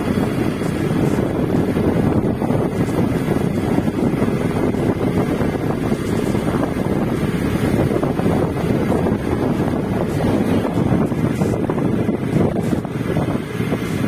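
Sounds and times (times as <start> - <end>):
road and engine noise: 0.0 - 14.0
wind buffeting microphone: 0.0 - 14.0.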